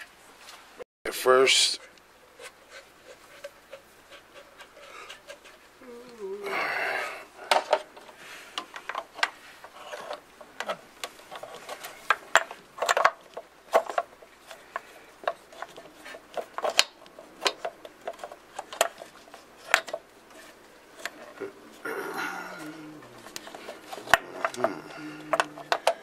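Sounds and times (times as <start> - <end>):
metal and plastic scraping: 7.5 - 21.8, 22.5 - 26.0
metal and plastic clicks and taps: 25.3 - 26.0.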